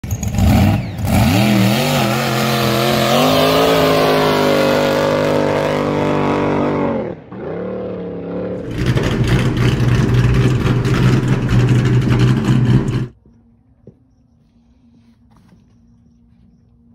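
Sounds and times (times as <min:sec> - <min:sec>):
engine revving: 0:00.0 - 0:13.2
engine idling: 0:08.6 - 0:13.2.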